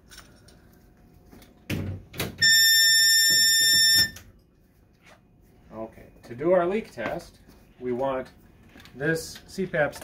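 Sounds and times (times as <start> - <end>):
high-pitched alarm tone: 2.4 - 4.2.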